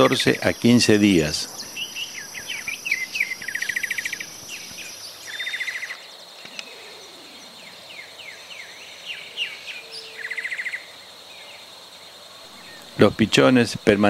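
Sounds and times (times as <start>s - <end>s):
fast buzzing trills: 0.0s - 6.0s
birds chirping: 0.0s - 14.0s
high insect drone: 0.0s - 14.0s.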